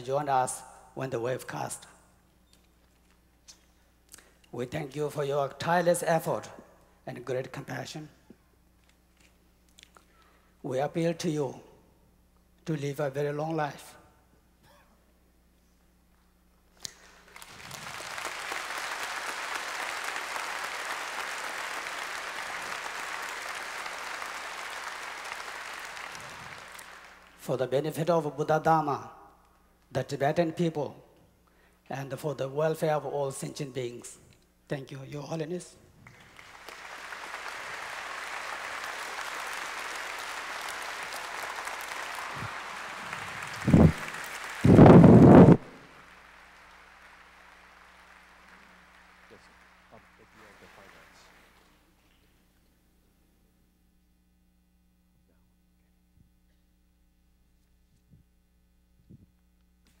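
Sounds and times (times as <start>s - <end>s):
audience applause: 16.9s - 27.4s, 36.0s - 51.8s.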